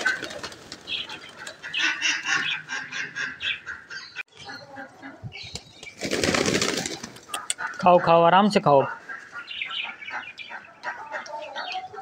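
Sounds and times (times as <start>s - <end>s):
pigeons flapping and jostling: 0.0s - 1.8s, 5.4s - 7.8s
repeated bird calls: 0.0s - 12.0s
wing flapping: 5.5s - 7.8s.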